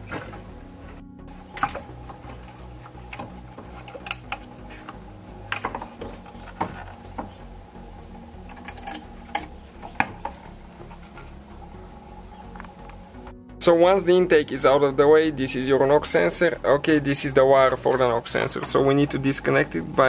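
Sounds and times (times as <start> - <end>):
plastic knocking against metal: 1.5 - 7.4.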